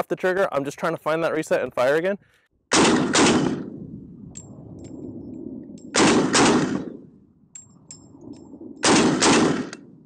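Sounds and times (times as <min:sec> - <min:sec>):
rifle shots echoing: 0:02.7 - 0:03.8, 0:05.9 - 0:07.1, 0:08.8 - 0:10.0.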